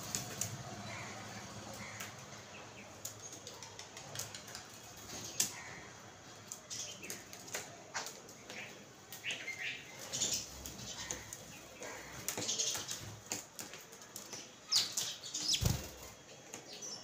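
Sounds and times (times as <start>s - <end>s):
beaks pecking on hard surface: 2.9s - 17.0s
bird wings fluttering: 15.4s - 16.2s.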